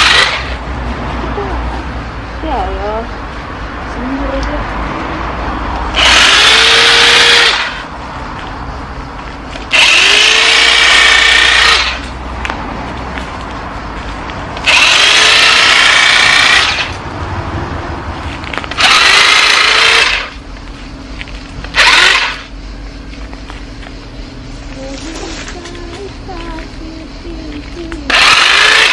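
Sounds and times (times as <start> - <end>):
electric pole cutter motor whining: 0.0 - 0.6, 5.9 - 7.9, 9.6 - 12.1, 14.6 - 17.0, 18.5 - 20.4, 21.6 - 22.5, 28.1 - 28.9.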